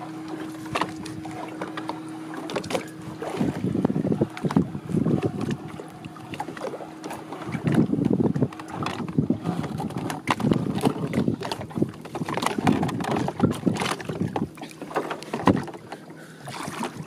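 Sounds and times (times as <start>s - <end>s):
water splashing against boat hull: 0.0s - 17.0s
wind buffeting microphone: 2.6s - 14.6s.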